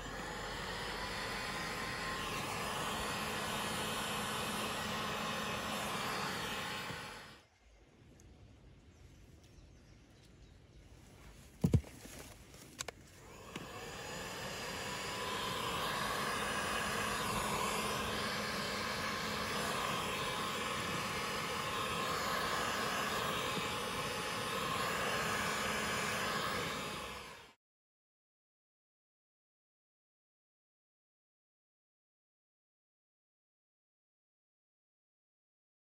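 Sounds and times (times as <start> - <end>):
heat gun fan whining: 0.0 - 7.4, 12.6 - 27.6.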